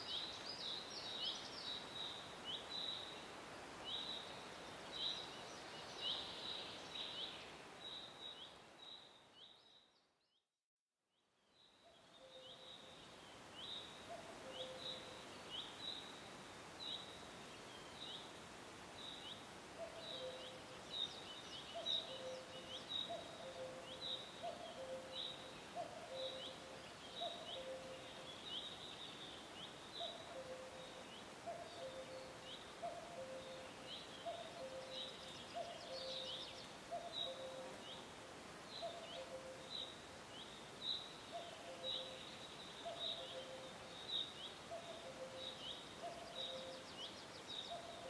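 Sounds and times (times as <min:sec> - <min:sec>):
steady hiss: 0:12.8 - 0:48.0.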